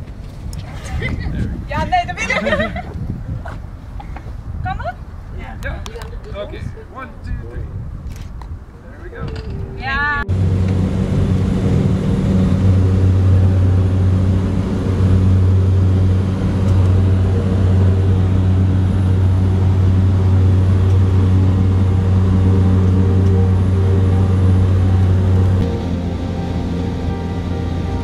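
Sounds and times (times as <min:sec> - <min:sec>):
propeller plane engine drone: 0:09.3 - 0:28.0.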